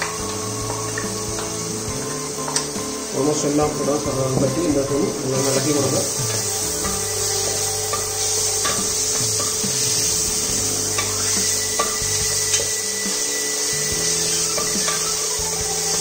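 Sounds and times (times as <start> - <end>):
paste frying in oil: 0.0 - 16.0.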